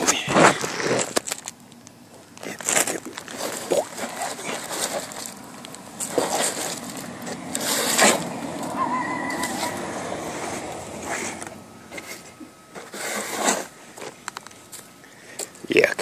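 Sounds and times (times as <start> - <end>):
wet leaves scraped from gutter: 2.6 - 11.4, 12.0 - 13.8.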